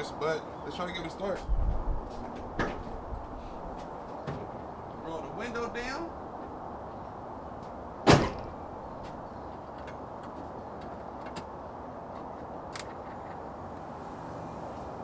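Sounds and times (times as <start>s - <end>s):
steady background hiss: 0.0s - 15.0s
car door shutting: 8.0s - 8.6s.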